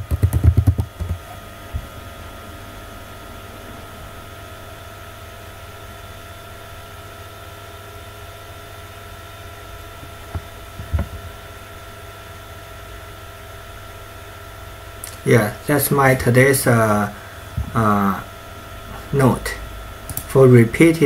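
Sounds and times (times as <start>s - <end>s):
background hum and hiss: 0.0s - 21.0s
soft knocks: 10.3s - 11.3s.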